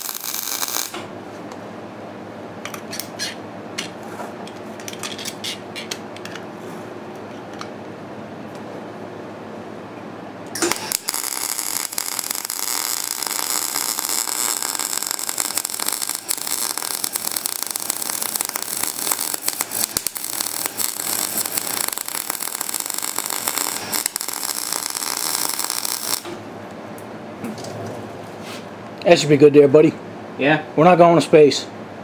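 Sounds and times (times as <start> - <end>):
welder arc crackling: 0.0 - 1.1, 10.6 - 26.4.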